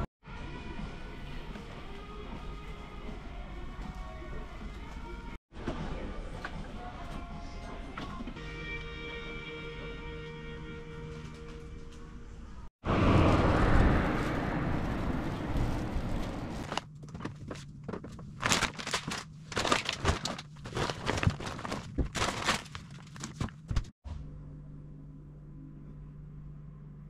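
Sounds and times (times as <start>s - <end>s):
shopping bag rustling: 14.1s - 23.9s.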